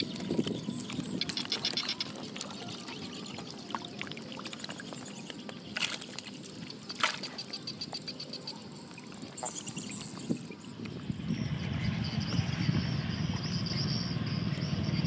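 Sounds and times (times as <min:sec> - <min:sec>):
sharp water splashes: 0:00.0 - 0:11.0
fish thrashing in shallow water: 0:00.0 - 0:12.2.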